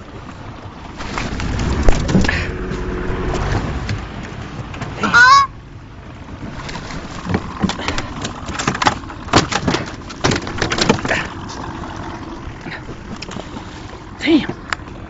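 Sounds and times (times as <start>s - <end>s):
water splashing: 0.0s - 15.0s
knocks and bumps on boat: 6.3s - 12.1s.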